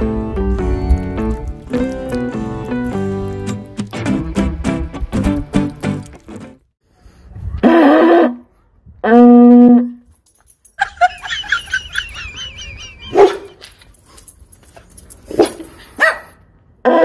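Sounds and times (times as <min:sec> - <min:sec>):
dog barks: 0:13.1 - 0:13.6, 0:15.3 - 0:17.0.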